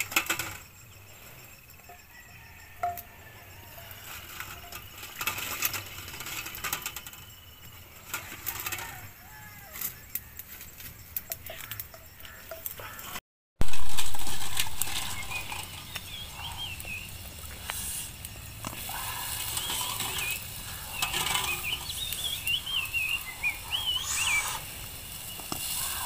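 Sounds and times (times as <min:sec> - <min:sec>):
birds chirping: 0:14.5 - 0:26.0.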